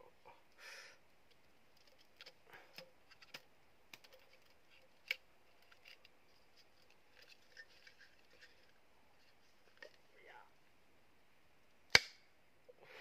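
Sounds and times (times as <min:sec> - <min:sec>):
bamboo pieces clicking and tapping: 0:01.2 - 0:10.0, 0:11.8 - 0:12.3.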